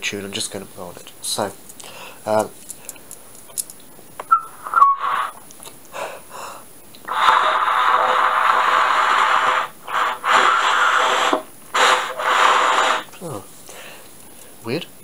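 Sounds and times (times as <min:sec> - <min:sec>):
breath blown through a bugle: 0:04.7 - 0:05.4, 0:07.1 - 0:13.2.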